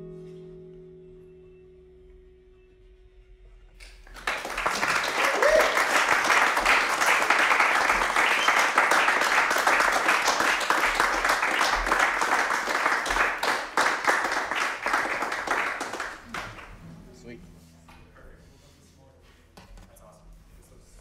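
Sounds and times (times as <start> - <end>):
small audience applauding: 3.8 - 16.8.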